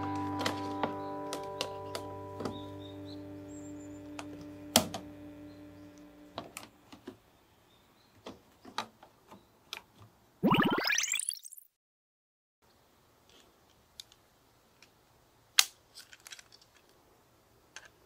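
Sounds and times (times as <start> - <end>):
plastic track pieces clicking: 15.6 - 17.0.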